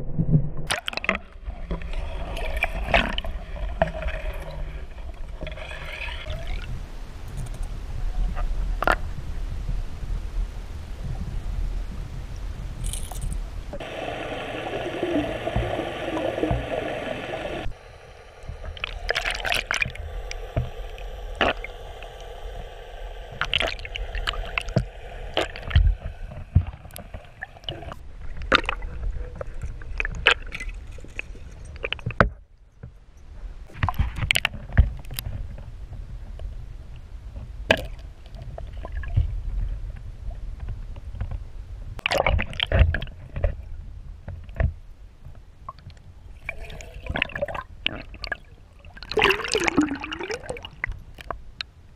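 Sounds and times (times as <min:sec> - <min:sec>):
underwater rush of water: 0:00.7 - 0:07.6, 0:13.7 - 0:32.1, 0:46.4 - 0:51.3
hiss: 0:13.8 - 0:28.0.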